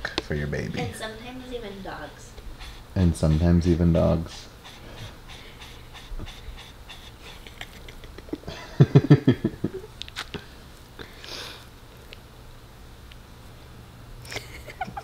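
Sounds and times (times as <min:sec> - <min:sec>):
dog panting: 0:00.8 - 0:08.4.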